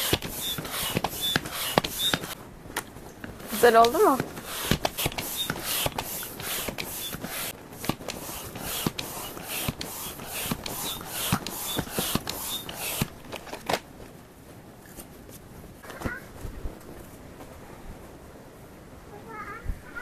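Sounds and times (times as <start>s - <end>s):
hand air pump hissing: 0.0s - 2.4s, 3.4s - 13.7s.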